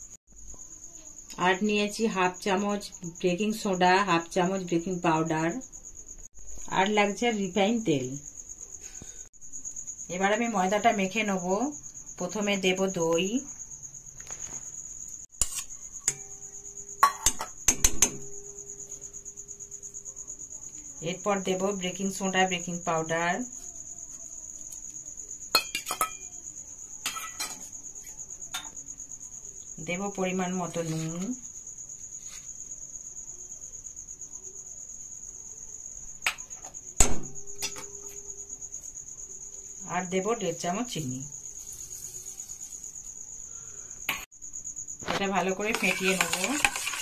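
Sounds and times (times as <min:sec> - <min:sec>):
crickets chirping: 0:00.0 - 0:47.0
metal spoon knocking bowl: 0:17.0 - 0:18.5, 0:25.6 - 0:26.3, 0:37.0 - 0:38.2, 0:45.7 - 0:47.0
spoon clinking against steel bowls: 0:25.6 - 0:26.3, 0:45.7 - 0:47.0.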